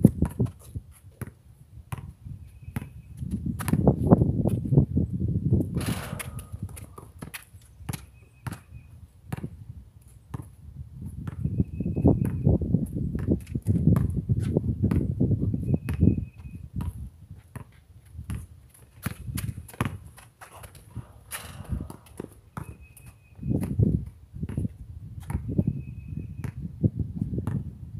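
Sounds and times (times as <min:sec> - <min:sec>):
basketball bouncing on concrete: 0:00.0 - 0:04.6, 0:05.7 - 0:09.6, 0:10.3 - 0:25.7, 0:26.4 - 0:26.7, 0:27.4 - 0:27.8
sneakers scuffing: 0:16.8 - 0:25.5.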